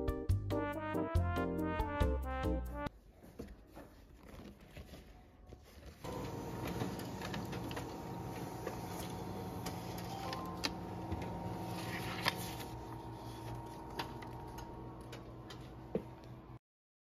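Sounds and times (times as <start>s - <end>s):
printer paper path clicks: 6.1s - 12.8s
laser printer whirring: 6.1s - 15.6s.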